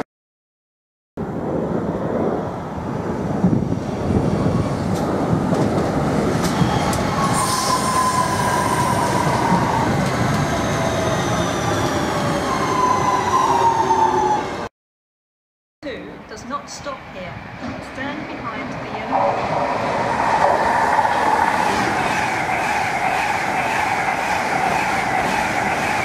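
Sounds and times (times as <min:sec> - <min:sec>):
train wheel and rail noise: 0:01.2 - 0:14.7, 0:16.2 - 0:26.0.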